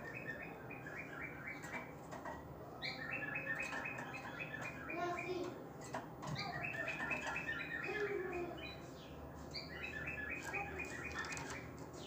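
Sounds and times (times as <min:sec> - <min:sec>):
canary singing trills: 0:00.0 - 0:01.9, 0:02.8 - 0:05.6, 0:06.2 - 0:12.0.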